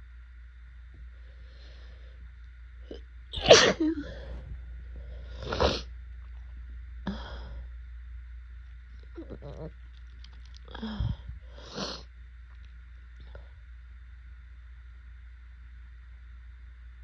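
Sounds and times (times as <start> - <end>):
woman sneezing: 3.4 - 4.1.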